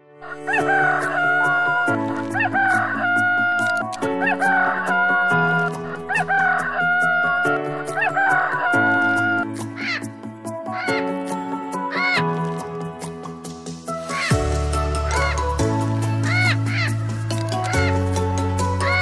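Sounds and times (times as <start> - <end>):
rooster crowing: 0.2 - 10.0.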